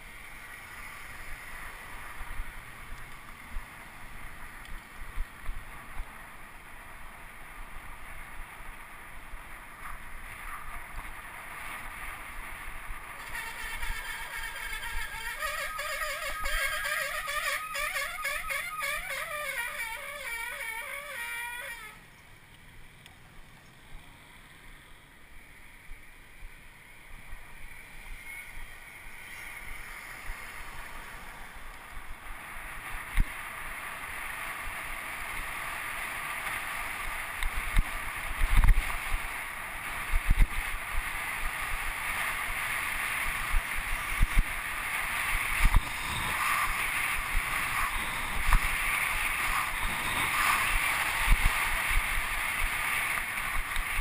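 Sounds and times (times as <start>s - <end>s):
wind rushing over microphone: 36.9s - 54.0s.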